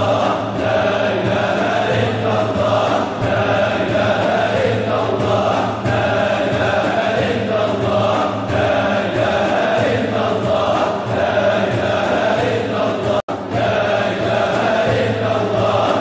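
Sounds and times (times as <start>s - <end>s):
men chanting in unison: 0.0s - 16.0s.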